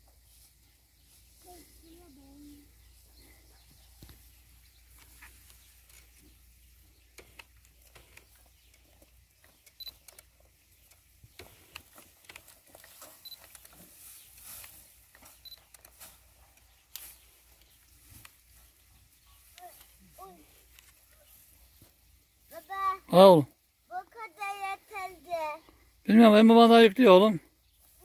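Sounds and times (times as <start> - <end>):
rustling of cut hay: 0.0 - 28.0
light clicks: 7.1 - 13.8.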